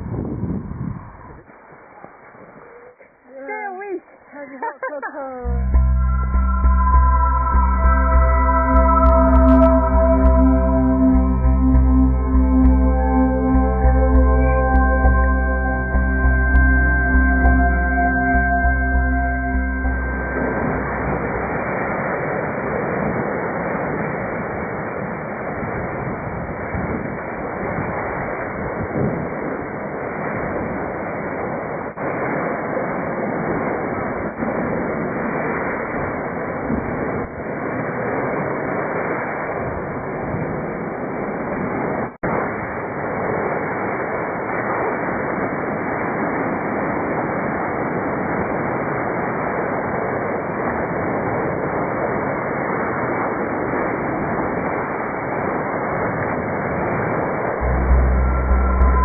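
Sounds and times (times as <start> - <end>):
wind on microphone: 0.0 - 3.1, 5.4 - 59.0
waves breaking against sea wall: 21.5 - 57.6.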